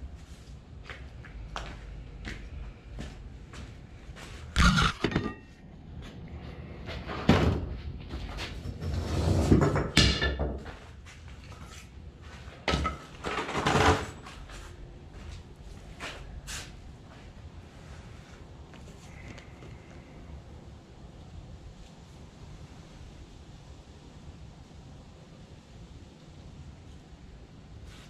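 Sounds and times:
knocks and thuds of tools: 4.6s - 5.4s.

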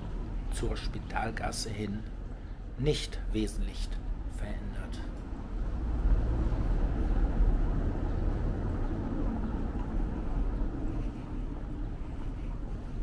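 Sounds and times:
low fluctuating street rumble: 0.0s - 13.0s.

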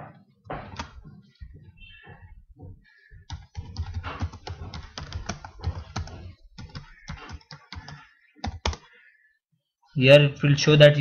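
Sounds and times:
computer keyboard typing: 3.2s - 8.9s.

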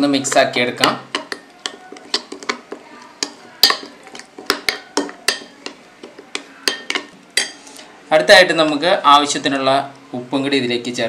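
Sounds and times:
spoon stirring thick yogurt: 0.0s - 7.9s
spoon clicking on glass bowl: 3.2s - 7.6s.

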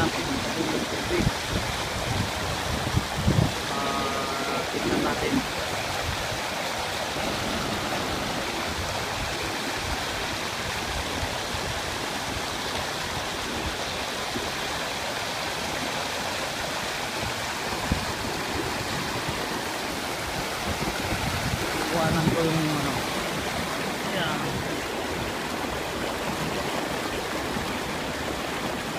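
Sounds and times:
stream rushing over rocks: 0.0s - 28.9s.

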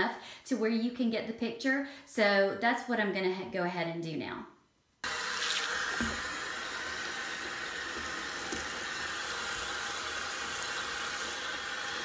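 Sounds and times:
bathtub faucet running: 5.0s - 12.0s.

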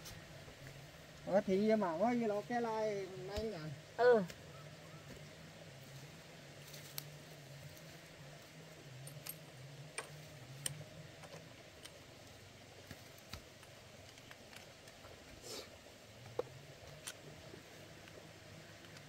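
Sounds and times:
faint low hum: 0.0s - 19.0s
small hard parts clicking: 12.8s - 15.3s.

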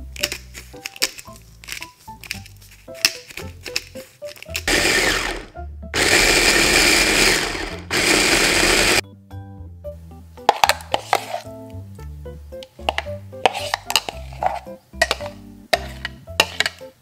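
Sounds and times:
electric mini chopper whirring: 4.6s - 9.0s.

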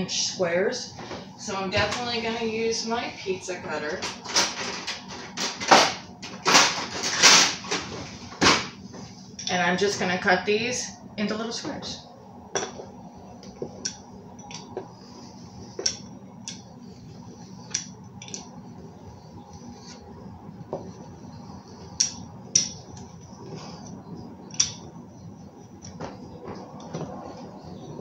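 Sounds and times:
pizza cutter rolling through dough: 14.5s - 28.0s.

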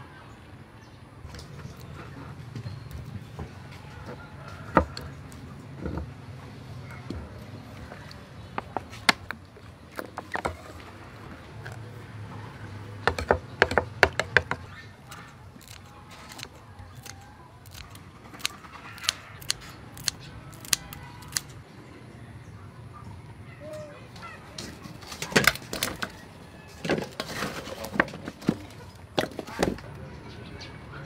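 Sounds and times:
scissors snipping: 15.0s - 21.5s.

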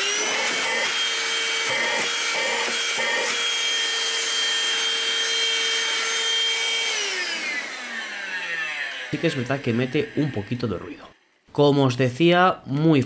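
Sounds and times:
handheld vacuum cleaner running: 0.0s - 11.2s.

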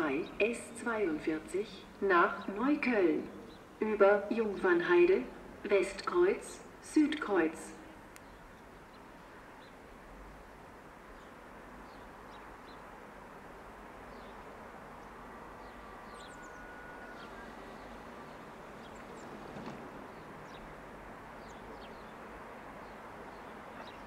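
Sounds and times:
small birds chirping: 14.1s - 20.8s, 21.4s - 24.0s.

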